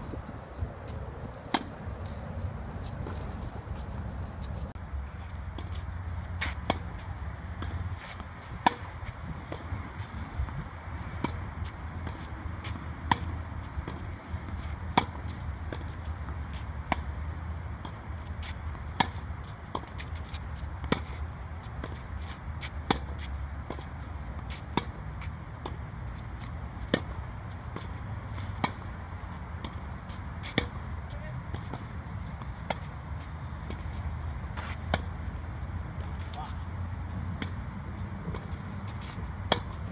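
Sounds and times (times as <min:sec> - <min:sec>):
tennis racket hitting ball: 0:05.5 - 0:17.2, 0:17.8 - 0:25.0, 0:25.6 - 0:29.0, 0:29.6 - 0:30.9, 0:33.7 - 0:35.3, 0:38.3 - 0:39.9.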